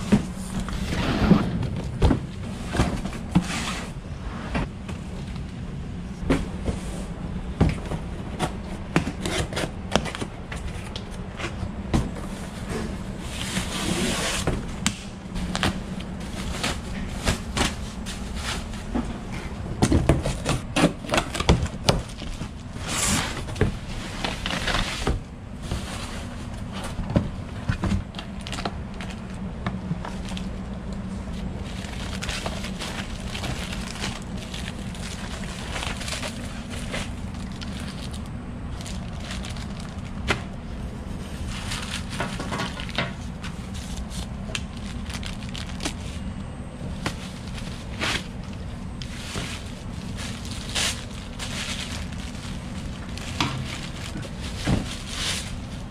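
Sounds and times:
steady low hum: 0.0s - 55.9s
plastic and paper rustling: 15.4s - 19.1s, 19.9s - 55.9s.

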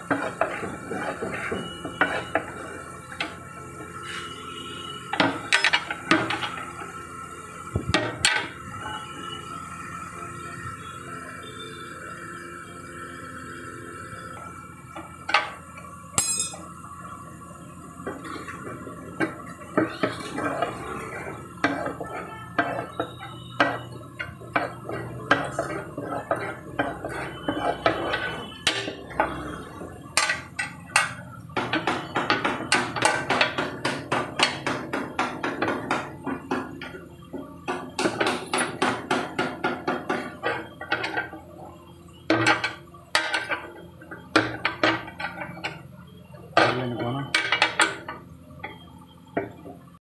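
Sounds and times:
metal bar clinking on pins: 16.2s - 16.6s.

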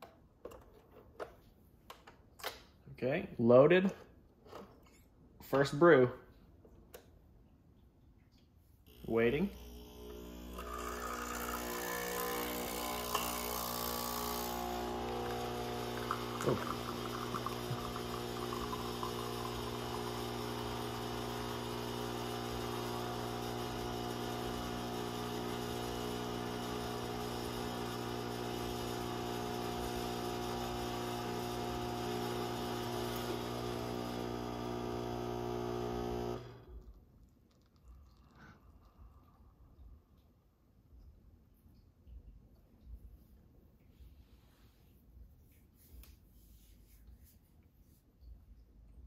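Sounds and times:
espresso machine pump buzzing: 8.9s - 36.8s.

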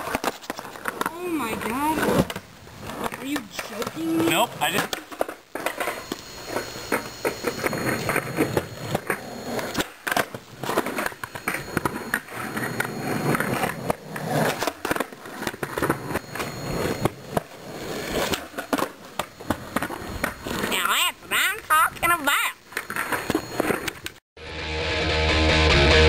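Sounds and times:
skateboard clacking down: 0.0s - 20.7s
skateboard wheels rolling on concrete: 0.0s - 24.2s.

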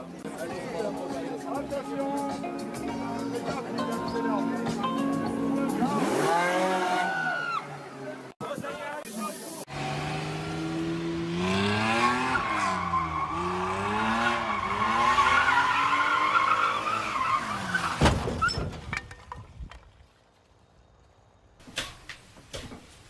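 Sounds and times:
car engine revving: 5.8s - 7.2s, 9.7s - 17.7s.

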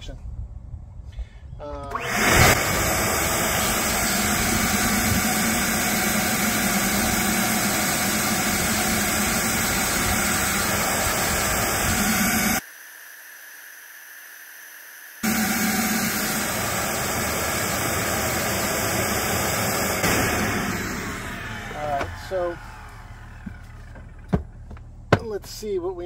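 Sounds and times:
shop vacuum motor running: 1.9s - 12.6s, 15.2s - 25.0s.

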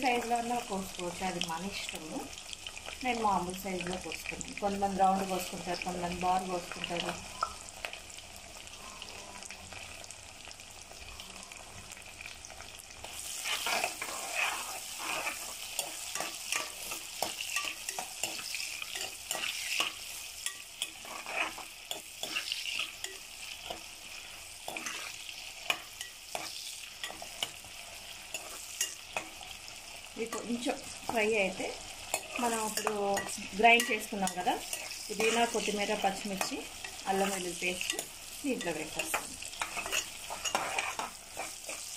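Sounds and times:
vegetables sizzling in oil: 0.0s - 41.9s
ladle scraping metal pot: 13.2s - 23.8s, 39.0s - 41.8s.

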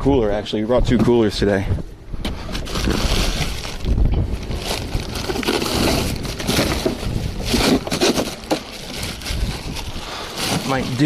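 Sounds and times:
ice crunching: 2.5s - 11.0s
plastic bags crinkling: 2.5s - 11.0s.

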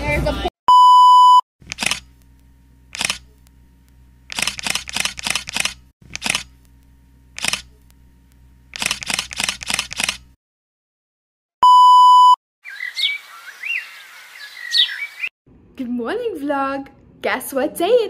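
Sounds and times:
camera shutter clicks: 1.6s - 2.1s, 2.9s - 3.3s, 4.3s - 6.5s, 7.4s - 7.7s, 8.7s - 10.3s
film advance ratcheting clicks: 1.6s - 2.1s, 2.9s - 3.3s, 4.3s - 6.5s, 7.4s - 7.7s, 8.7s - 10.3s.

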